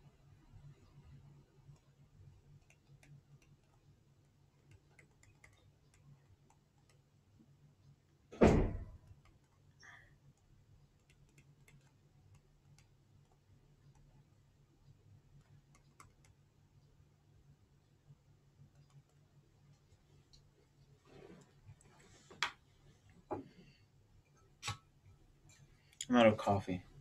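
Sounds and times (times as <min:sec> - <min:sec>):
loud thump: 0:08.4 - 0:08.9.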